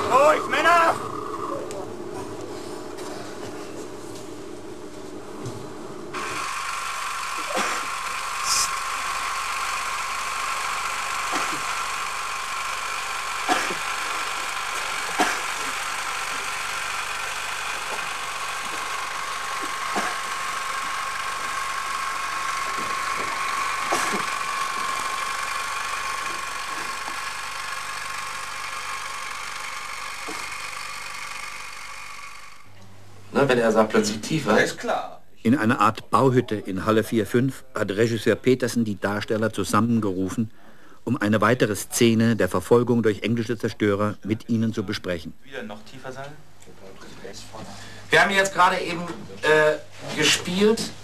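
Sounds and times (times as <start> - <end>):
machinery hum with whine: 0.0 - 34.5.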